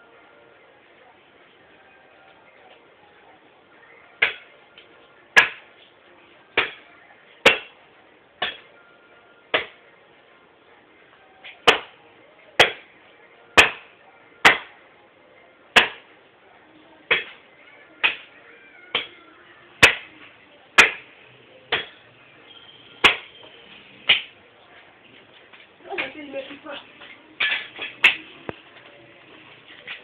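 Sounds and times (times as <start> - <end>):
axe chopping wood: 5.4 - 5.6, 7.4 - 7.7, 11.6 - 11.9, 12.6 - 12.8, 13.6 - 14.7, 15.8 - 16.0, 17.1 - 17.4, 19.8 - 20.1, 20.8 - 21.0, 23.0 - 23.3.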